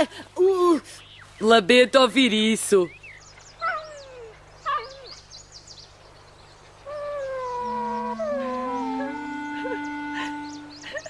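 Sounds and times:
faint bird chirps: 2.5 - 11.0
dog whimpering: 3.6 - 5.2
soft flute music: 6.9 - 11.0.

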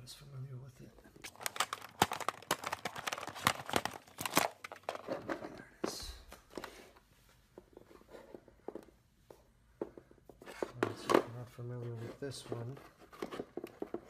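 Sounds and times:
hard plastic clicking and rattling: 1.3 - 5.4.

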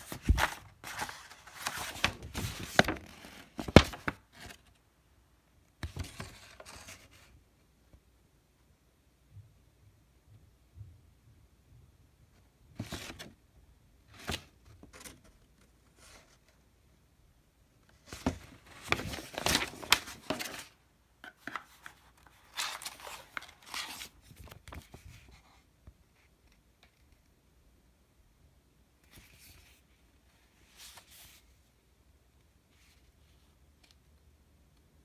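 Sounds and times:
paper rustling and crinkling: 0.0 - 4.8, 17.9 - 25.5.

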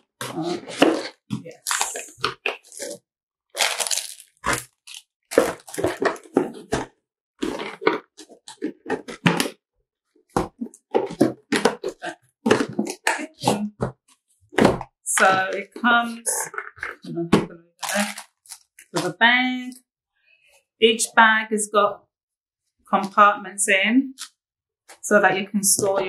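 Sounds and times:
packaging crinkling and knocking: 0.7 - 9.6, 17.8 - 19.1.

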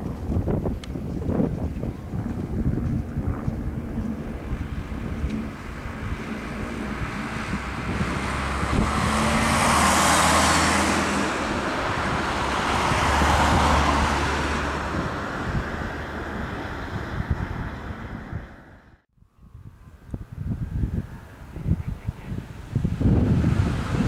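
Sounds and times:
vehicles driving past: 0.0 - 19.0, 21.0 - 24.0
low engine hum: 0.0 - 19.1, 19.8 - 24.0.

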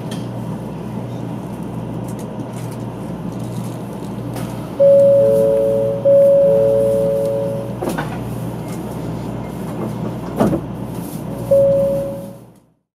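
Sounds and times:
train low hum: 0.0 - 12.8
electronic two-note chime: 4.8 - 7.8, 11.5 - 12.4.

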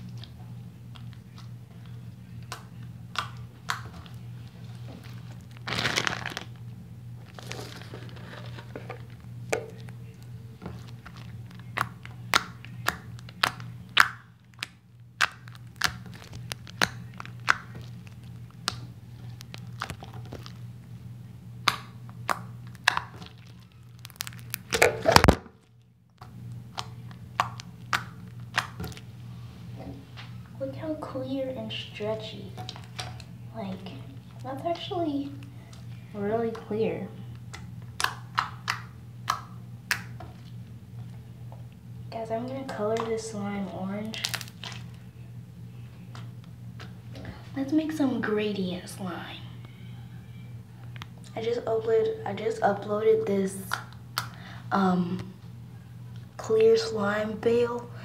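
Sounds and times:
slime clicking and popping: 2.4 - 4.2, 5.0 - 6.6, 7.3 - 20.6, 21.6 - 25.5, 26.1 - 29.1, 37.4 - 40.6, 44.0 - 45.0.

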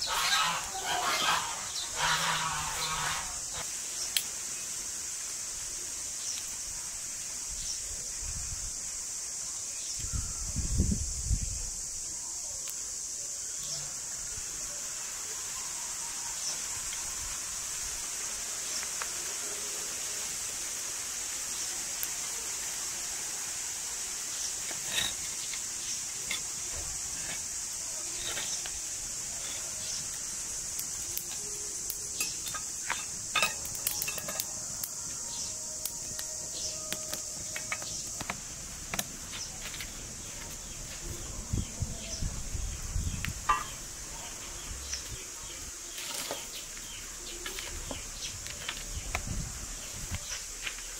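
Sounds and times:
insects hissing: 0.0 - 50.9
twig fire crackling and popping: 3.4 - 7.3, 24.4 - 41.0, 45.9 - 50.9.

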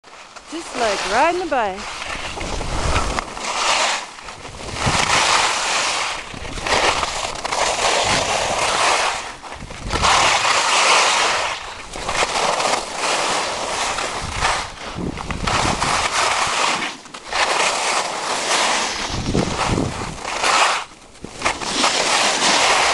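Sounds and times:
skis scraping over snow: 0.1 - 22.9
wind rumble on microphone: 0.6 - 3.4, 4.2 - 12.4, 13.7 - 16.6, 18.9 - 20.4.

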